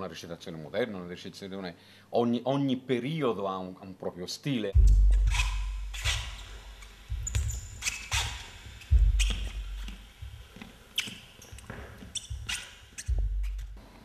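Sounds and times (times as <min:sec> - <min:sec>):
footsteps and scuffs on stage: 0:04.8 - 0:14.0.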